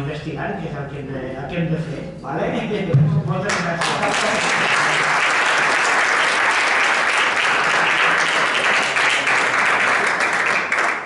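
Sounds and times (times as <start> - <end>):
audience applauding: 3.5 - 11.0.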